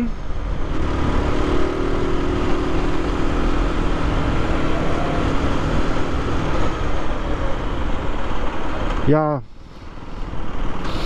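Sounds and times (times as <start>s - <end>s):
motorcycle engine cruising: 0.0s - 8.8s.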